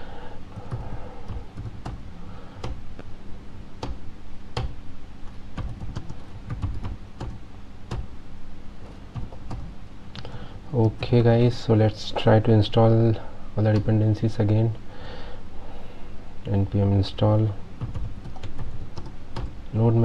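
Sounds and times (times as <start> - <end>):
typing on computer keyboard: 5.6 - 8.1, 17.8 - 19.5.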